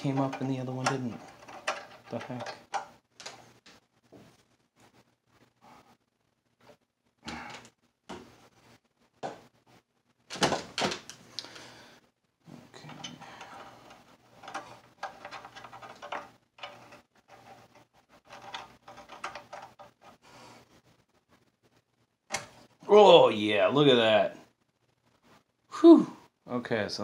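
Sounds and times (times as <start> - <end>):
chip puller scraping and rattling: 0.0 - 2.9, 12.8 - 20.1
clicks and knocks in metal chassis: 0.0 - 3.3.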